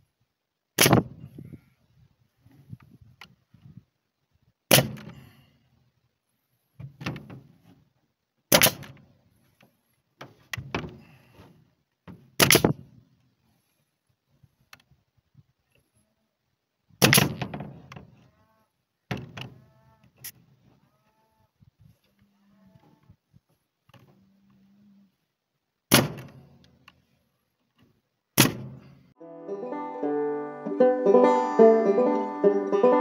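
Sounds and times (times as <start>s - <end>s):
nail gun firing: 0.8s - 1.1s, 4.7s - 5.2s, 8.5s - 9.0s, 12.4s - 12.8s, 17.0s - 17.7s, 25.9s - 26.4s, 28.4s - 28.8s.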